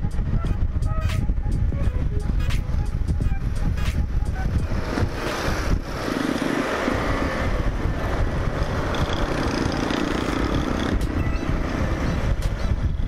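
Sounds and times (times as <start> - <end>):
wind buffeting microphone: 0.0 - 13.0
motorcycle engine running: 7.7 - 13.0.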